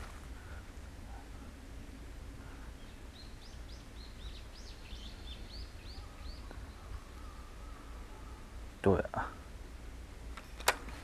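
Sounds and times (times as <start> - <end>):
low outdoor rumble: 0.0 - 11.0
small bird chirping: 2.7 - 8.6.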